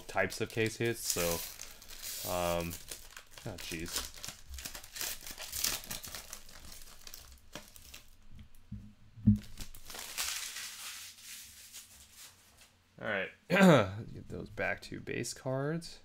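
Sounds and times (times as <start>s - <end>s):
foil wrapper crinkling and tearing: 0.0s - 8.2s, 9.4s - 12.3s
dull thump: 8.7s - 9.5s.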